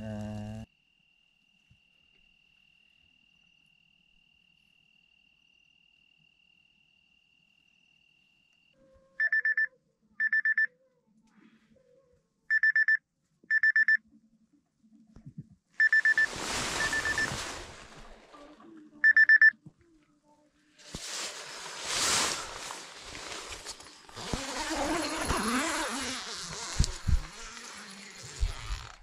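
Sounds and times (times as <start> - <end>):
electronic alarm beeping: 9.2 - 10.7, 12.5 - 14.0, 15.8 - 17.4, 19.0 - 19.5
rustling: 15.8 - 19.0, 20.7 - 29.0.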